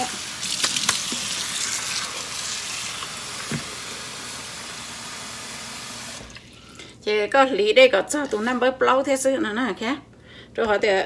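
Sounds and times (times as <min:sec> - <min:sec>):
water pouring into sink: 0:00.0 - 0:06.8.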